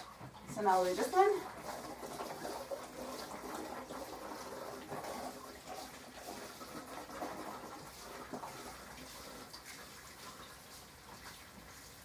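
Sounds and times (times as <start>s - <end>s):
water pouring from a jug: 0.0s - 12.0s
water splashing: 0.0s - 12.0s.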